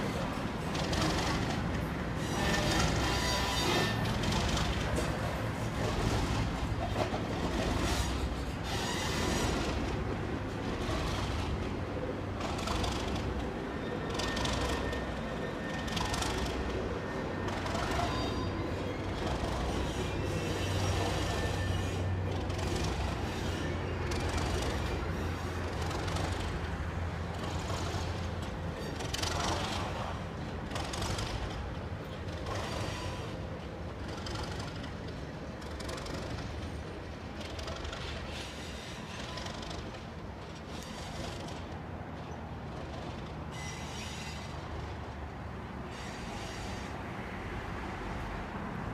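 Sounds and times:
distant diesel locomotive humming: 0:00.0 - 0:48.9.

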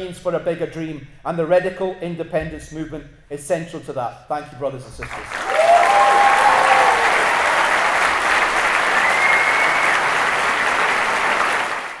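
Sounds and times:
audience applauding: 0:05.0 - 0:12.0.

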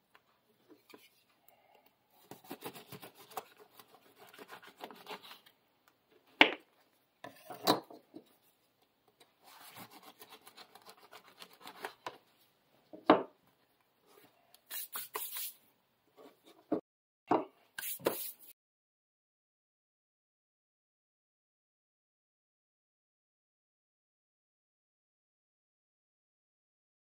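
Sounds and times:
knife sawing through crusty bread: 0:02.3 - 0:05.3.

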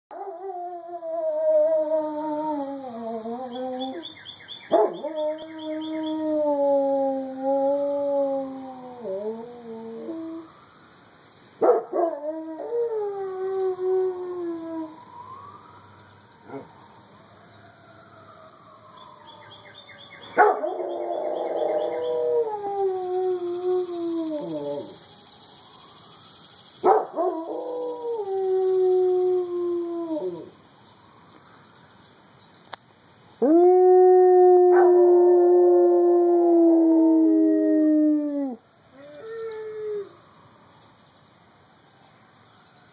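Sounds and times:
dog howling: 0:20.4 - 0:23.3.

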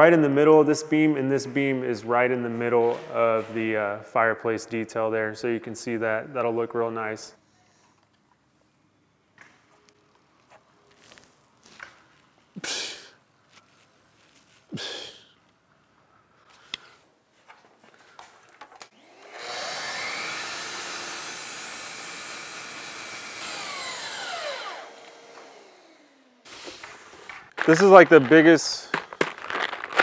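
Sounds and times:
miter saw cutting wood: 0:18.9 - 0:27.2.

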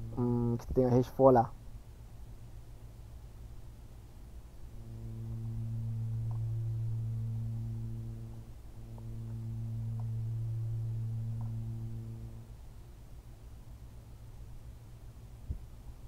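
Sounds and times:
low steady humming tone: 0:00.0 - 0:16.0.

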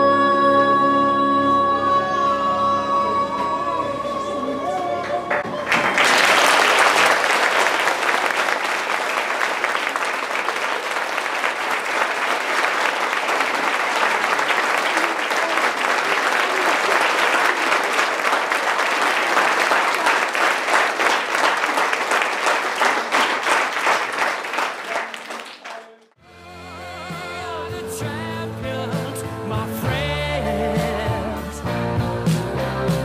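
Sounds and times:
children applauding: 0:05.0 - 0:26.2.

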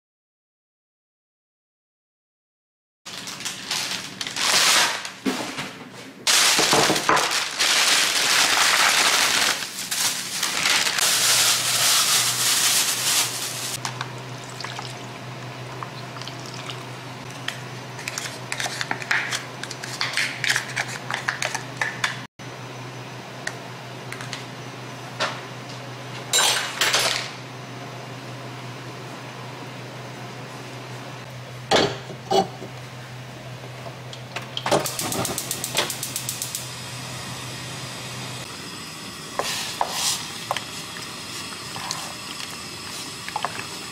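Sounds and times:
plastic bag crinkling: 0:03.1 - 0:05.2, 0:06.3 - 0:13.8
broth pouring into pot: 0:11.0 - 0:16.9
dishware clinking: 0:26.4 - 0:27.2.

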